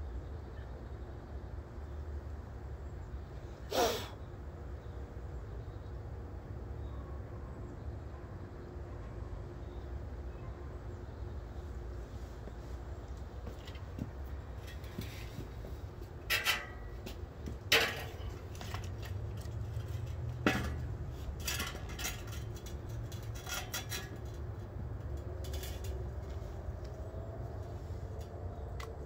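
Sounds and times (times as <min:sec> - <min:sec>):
metallic clanks of steel parts: 0:16.2 - 0:26.5.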